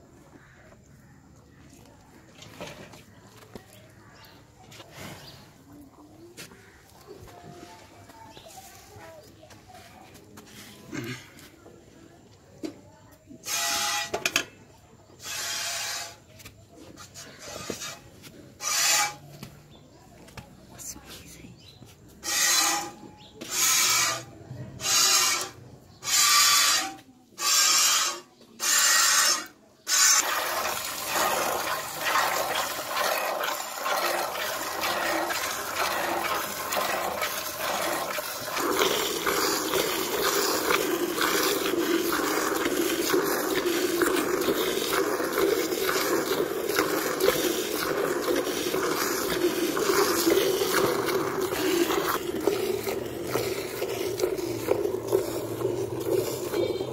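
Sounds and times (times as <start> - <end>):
milk spurting into steel bucket: 13.3 - 19.3, 22.2 - 56.9
rhythmic hiss of milk streams: 29.9 - 56.9.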